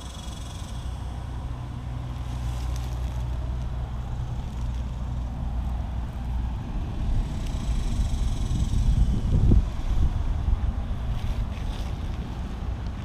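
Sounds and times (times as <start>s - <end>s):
low rumble: 0.0s - 13.0s
wind buffeting microphone: 3.3s - 13.0s.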